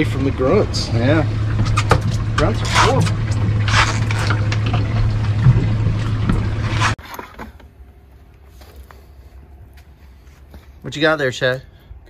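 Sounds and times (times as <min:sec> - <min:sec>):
water splashing and sloshing: 0:00.0 - 0:08.8
boat engine humming: 0:00.0 - 0:10.8.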